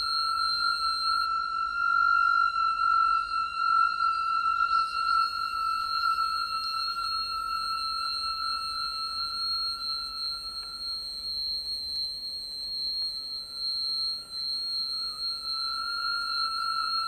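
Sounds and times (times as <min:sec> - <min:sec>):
sustained high electronic tones: 0:00.0 - 0:11.8.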